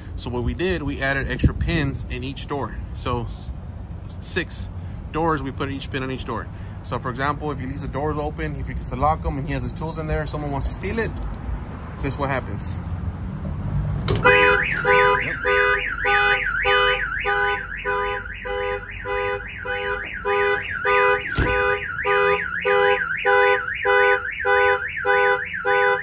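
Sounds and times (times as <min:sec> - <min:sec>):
car alarm siren warbling: 0:14.2 - 0:26.0.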